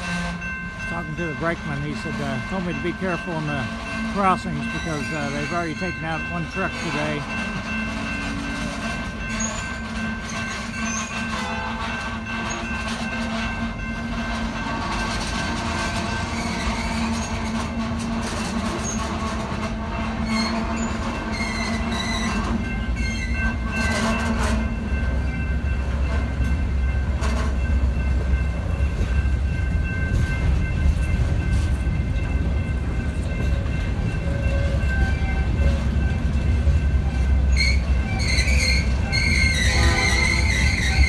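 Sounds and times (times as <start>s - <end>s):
freight train rumbling: 0.0s - 41.0s
wheel squeal: 37.5s - 41.0s.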